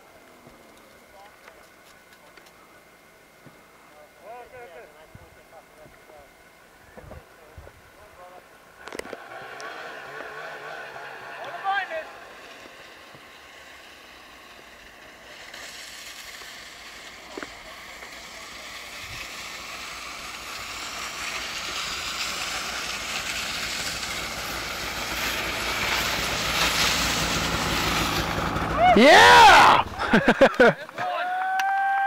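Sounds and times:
snowmobile engine running: 0:08.9 - 0:31.0.

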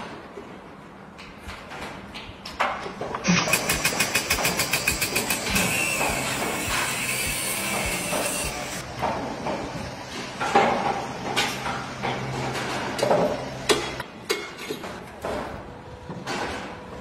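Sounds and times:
sharp knocks and clatters: 0:01.2 - 0:09.8
steady low hum: 0:03.3 - 0:09.0.

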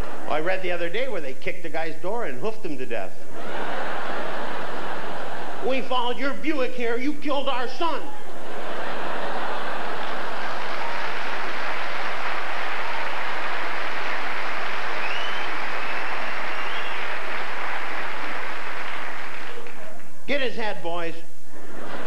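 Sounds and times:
audience laughing: 0:03.3 - 0:06.7, 0:07.9 - 0:20.2, 0:21.4 - 0:22.0
audience applauding: 0:08.6 - 0:20.4.

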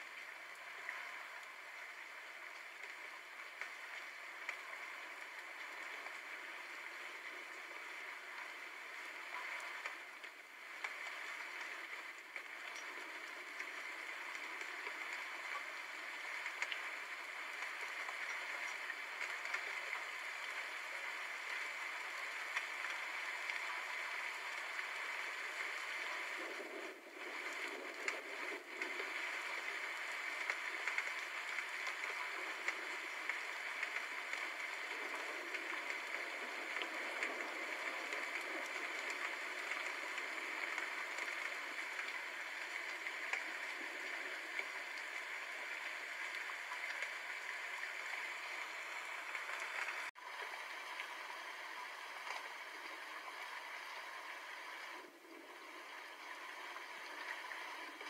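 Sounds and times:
steady rain: 0:00.0 - 0:58.0.

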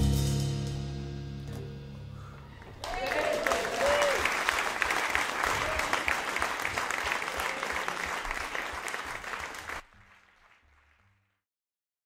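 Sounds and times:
audience clapping: 0:02.6 - 0:11.4.

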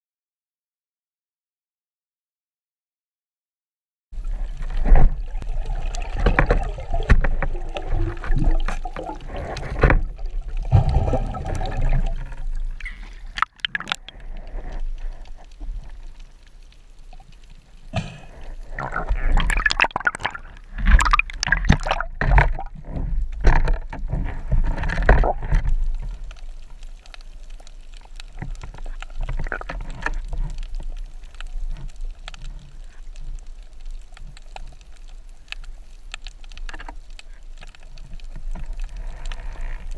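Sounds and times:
water sloshing and gurgling: 0:04.2 - 0:39.9.

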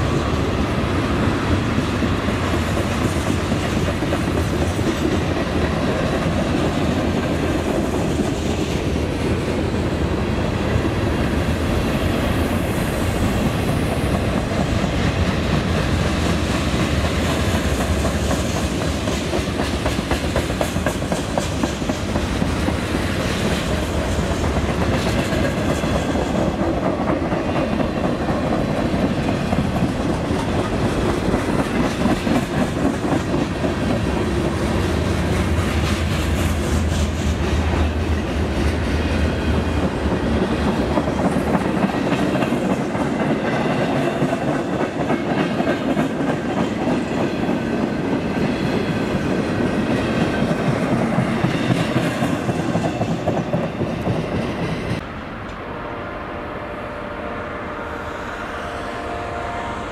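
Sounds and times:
freight train rolling past: 0:00.0 - 0:59.9
steel wheels clattering on rails: 0:12.6 - 0:55.0.

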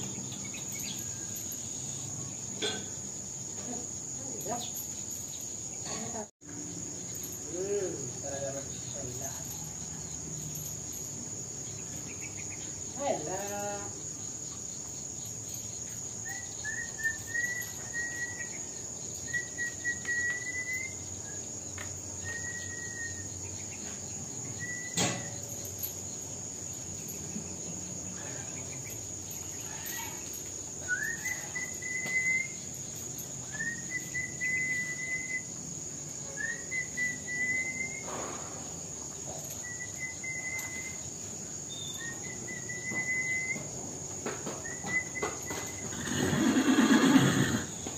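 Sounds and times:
high-pitched insect drone: 0:00.0 - 0:47.9
bird whistled call: 0:16.2 - 0:21.5, 0:22.2 - 0:23.4, 0:24.5 - 0:25.4, 0:29.6 - 0:32.7, 0:33.4 - 0:35.6, 0:36.3 - 0:38.4, 0:39.5 - 0:41.1, 0:41.7 - 0:43.7, 0:44.6 - 0:46.0.

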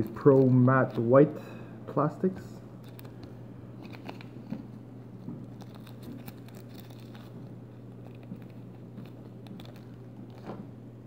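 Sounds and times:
plastic wrapper crinkling: 0:02.8 - 0:10.6.

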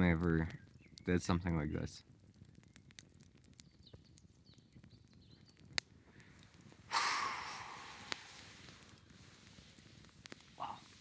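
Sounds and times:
breathy noise on microphone: 0:05.9 - 0:11.0.

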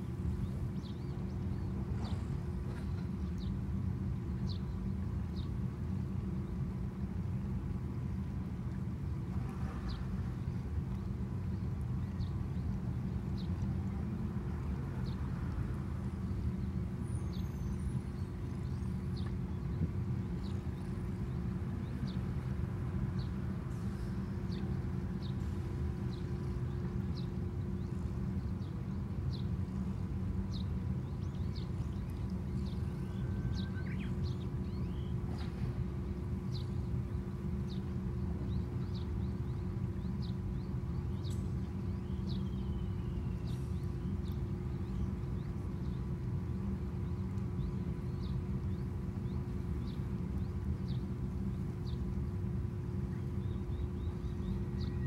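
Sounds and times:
steady low rumble: 0:00.0 - 0:55.0
small birds chirping: 0:23.2 - 0:55.0.

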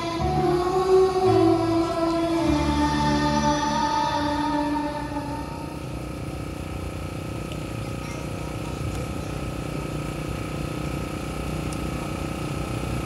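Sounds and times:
engine running with whine: 0:00.0 - 0:13.0.

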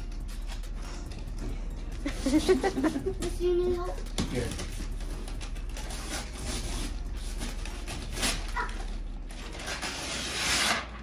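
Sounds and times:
wrapping paper rustling and tearing: 0:00.0 - 0:01.4, 0:04.3 - 0:11.0.

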